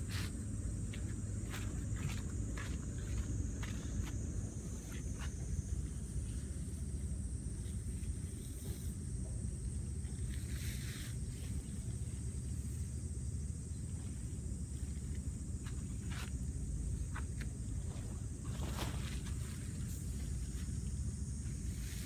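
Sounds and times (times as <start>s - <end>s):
footsteps on sandy ground: 0.0s - 6.3s, 14.0s - 17.7s
constant high drone: 0.0s - 22.0s.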